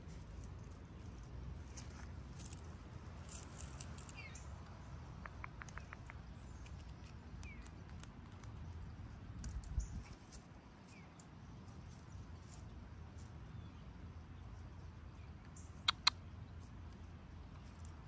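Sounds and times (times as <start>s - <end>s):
small bird chirps: 3.3s - 8.7s, 9.5s - 12.6s, 14.5s - 16.7s.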